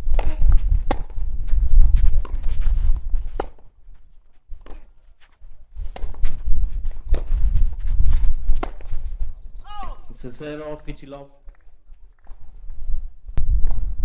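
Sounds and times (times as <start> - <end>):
footsteps on clay court: 0.1 - 9.1.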